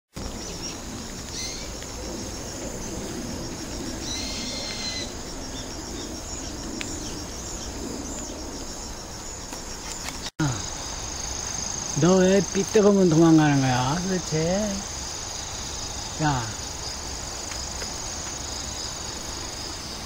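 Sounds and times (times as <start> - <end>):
bird calling: 0.2 - 13.2
insects trilling: 0.2 - 20.0.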